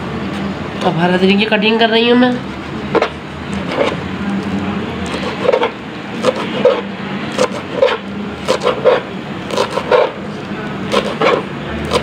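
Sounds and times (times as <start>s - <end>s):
steady background hum: 0.0s - 12.0s
knife chopping on cutting board: 2.9s - 4.0s, 5.2s - 10.2s, 10.9s - 12.0s.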